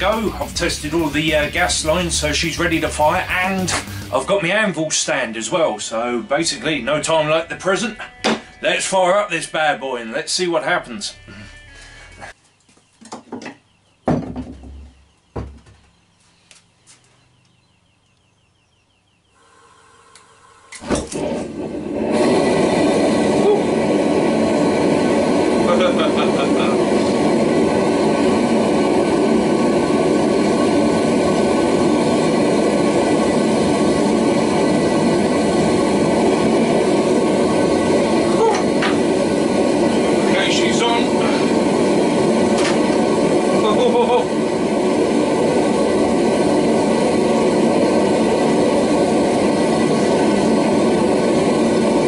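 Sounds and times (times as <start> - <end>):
gas burner flame roaring: 0.0 - 8.0, 19.4 - 52.0.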